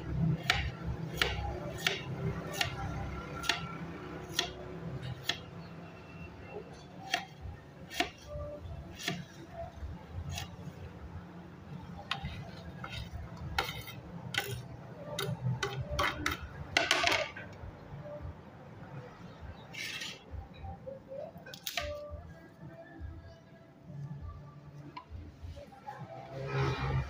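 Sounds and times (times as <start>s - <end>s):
knife slicing onion: 0.2s - 5.6s, 6.8s - 10.8s, 12.0s - 16.5s
knife scraping a plate: 10.3s - 10.5s, 12.1s - 16.4s, 19.7s - 20.3s.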